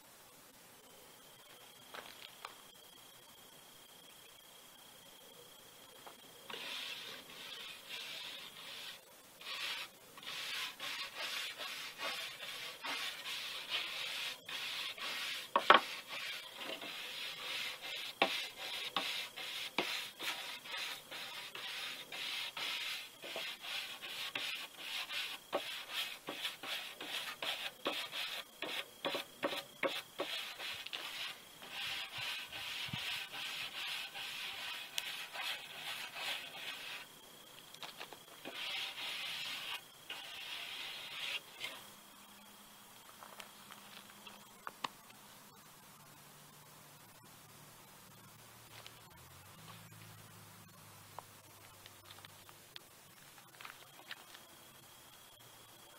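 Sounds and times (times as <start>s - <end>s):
brush scrubbing wood board: 6.5s - 37.1s, 38.4s - 41.8s.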